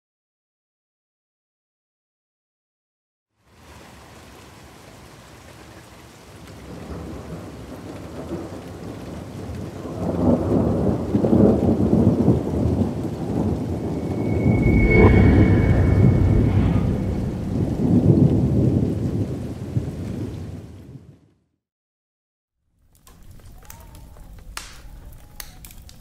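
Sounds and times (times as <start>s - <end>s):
rain hiss: 3.4s - 14.6s, 15.5s - 20.8s
thunder rumbles: 6.6s - 21.2s
high ringing tone: 13.7s - 17.8s.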